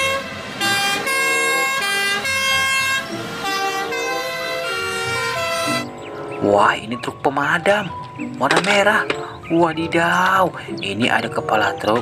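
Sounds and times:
fire engine two-tone siren: 0.0 - 5.9.

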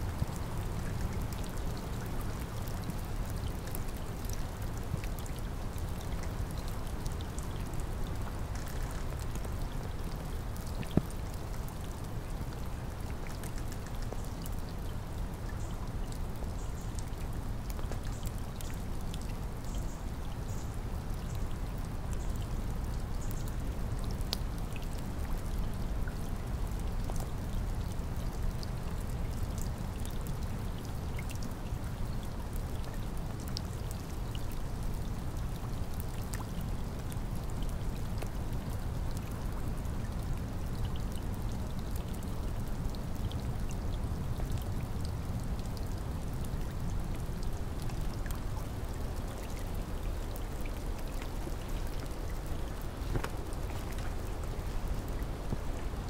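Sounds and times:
raindrops ticking: 0.1 - 20.1, 31.2 - 56.0
heavy rain: 36.7 - 56.0.

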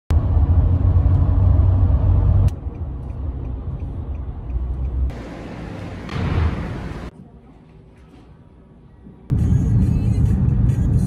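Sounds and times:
car driving on highway: 0.1 - 7.1.

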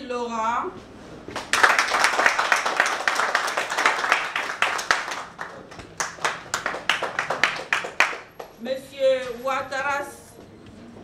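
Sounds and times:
audience clapping: 1.3 - 8.6.

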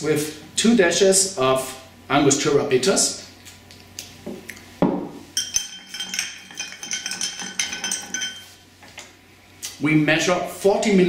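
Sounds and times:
spoon stirring ice in glass: 5.4 - 8.6.

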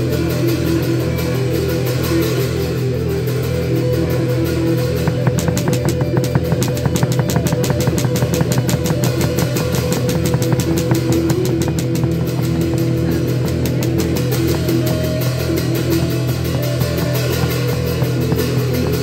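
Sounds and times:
band playing sustained low notes: 0.0 - 19.0
fast even drum beat: 5.0 - 19.0.

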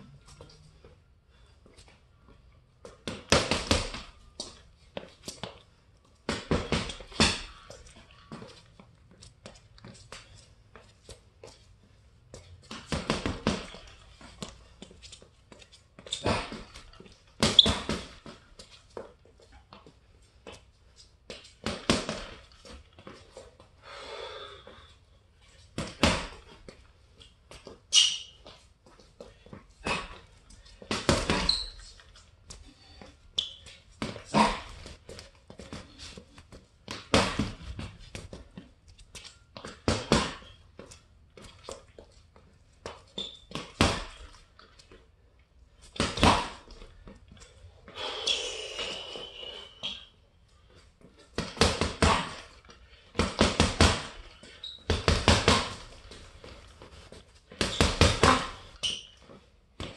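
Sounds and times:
gloves punching heavy bag: 3.0 - 4.1, 6.3 - 7.7, 12.7 - 13.9, 16.2 - 18.4, 21.6 - 22.4, 25.8 - 26.4, 29.8 - 30.2, 30.8 - 31.5, 34.0 - 35.0, 36.9 - 38.3, 39.6 - 40.5, 43.5 - 44.2, 45.9 - 46.8, 51.4 - 56.5, 57.5 - 58.8.

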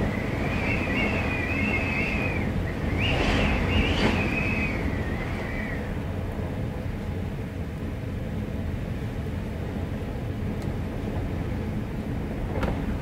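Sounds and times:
wind blowing against a door: 0.0 - 7.2, 10.9 - 13.0.

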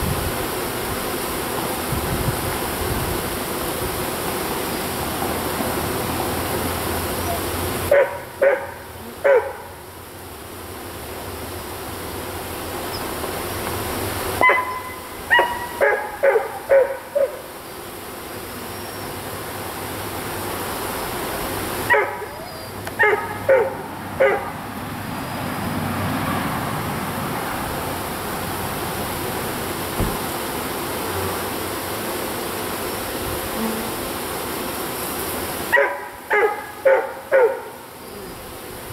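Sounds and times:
honeybee swarm buzzing: 0.0 - 38.9
dog barking: 7.3 - 9.8, 14.4 - 17.4, 21.9 - 24.6, 35.7 - 37.8.

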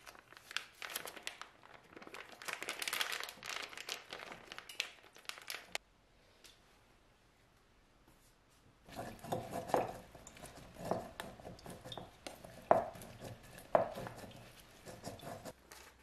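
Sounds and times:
spoon scraping in mesh strainer: 8.9 - 15.6.

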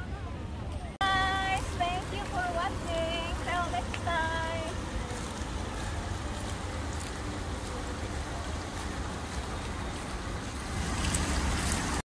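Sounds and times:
water rushing down fountain: 4.8 - 12.0.

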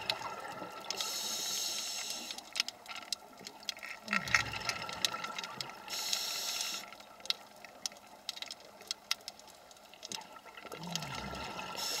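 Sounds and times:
exhaled bubbles hissing: 0.0 - 2.6, 4.0 - 7.0, 10.2 - 12.0
crackling clicks: 0.0 - 11.1.

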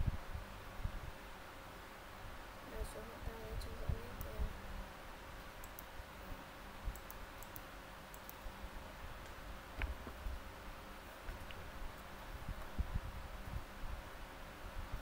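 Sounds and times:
computer mouse clicks: 5.6 - 5.9, 6.9 - 8.5.

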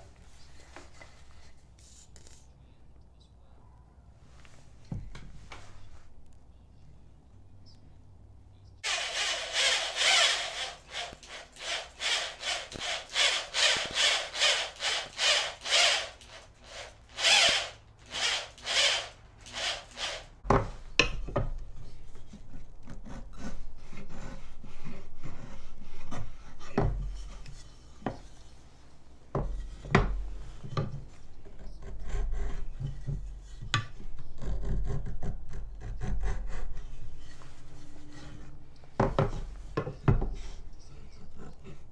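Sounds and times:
wood rubbing and scraping: 8.8 - 20.2
hand saw cutting wood: 8.8 - 20.3.

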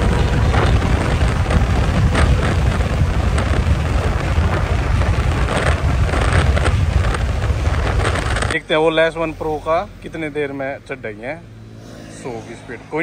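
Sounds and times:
wind buffeting microphone: 0.0 - 8.6.

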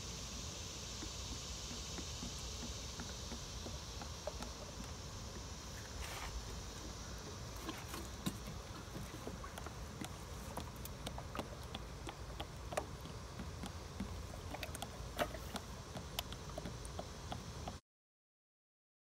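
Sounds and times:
small clicks and ticks: 0.9 - 5.7, 7.6 - 17.8.

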